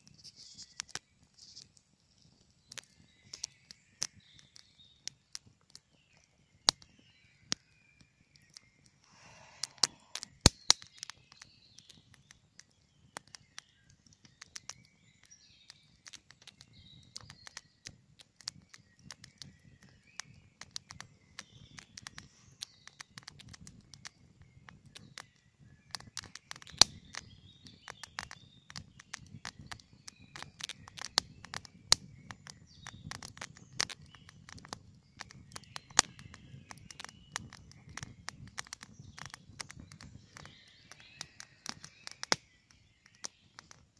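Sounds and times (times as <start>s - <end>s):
birds singing faintly: 0.0s - 43.9s
campfire crackling and popping: 0.0s - 43.9s
rush of flames: 9.0s - 10.8s.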